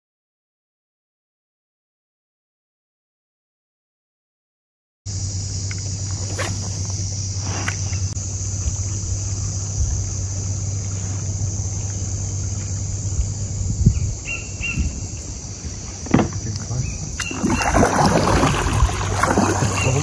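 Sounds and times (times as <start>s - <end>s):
constant low hum: 5.1s - 20.0s
high-pitched insect drone: 5.1s - 20.0s
soft knocks: 16.0s - 16.7s.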